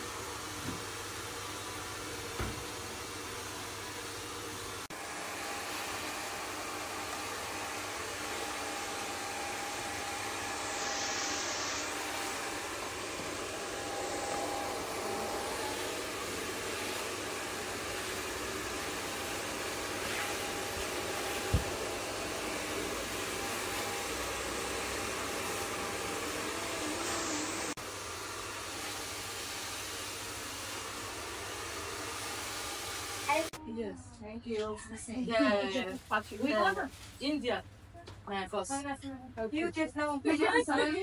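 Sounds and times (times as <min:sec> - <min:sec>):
hair dryer blowing: 0:00.0 - 0:33.6.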